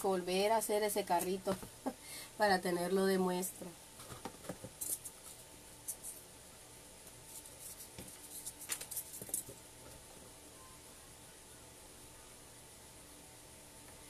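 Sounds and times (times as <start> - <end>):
hands handling craft materials: 7.0 - 10.4.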